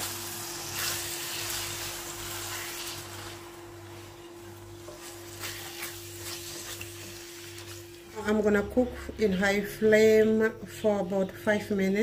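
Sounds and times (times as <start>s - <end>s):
liver sizzling in a pan: 0.0s - 8.1s
spatula stirring: 0.6s - 8.3s.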